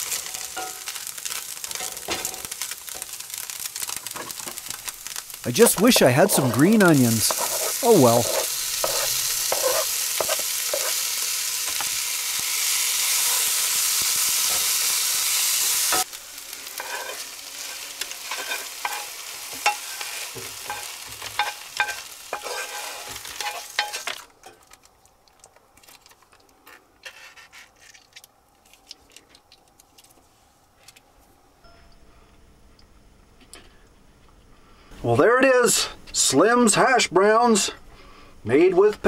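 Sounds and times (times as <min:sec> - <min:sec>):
food sizzling in oil: 0:00.0 - 0:24.8
wooden spoon scraping a pan: 0:05.7 - 0:11.1, 0:16.7 - 0:24.2, 0:27.0 - 0:28.0.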